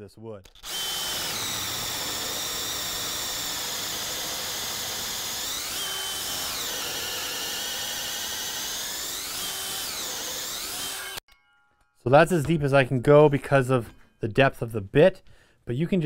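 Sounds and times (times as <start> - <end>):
drill motor whining: 0.5 - 11.2
hole saw cutting through wood: 0.5 - 11.2.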